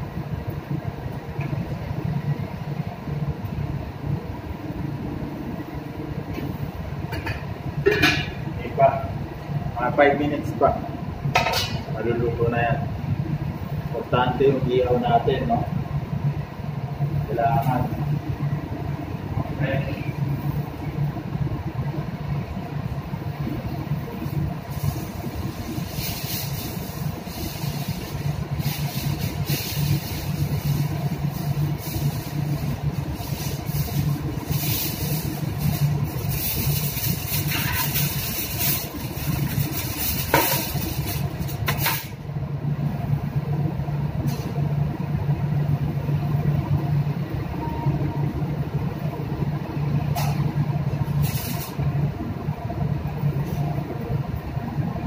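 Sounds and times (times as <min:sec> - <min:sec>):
low drone of ship machinery: 0:00.0 - 0:55.0.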